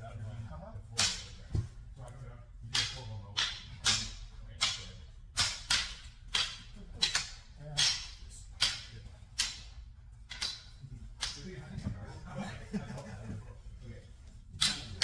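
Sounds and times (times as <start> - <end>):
sabres swishing and striking: 2.7 - 11.5.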